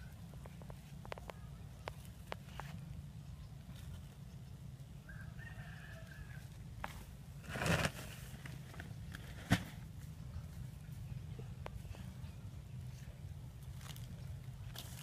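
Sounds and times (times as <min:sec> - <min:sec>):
faint rooster crowing: 0:05.0 - 0:06.7
coconut husk fibre rustling: 0:05.8 - 0:12.2, 0:12.8 - 0:15.0.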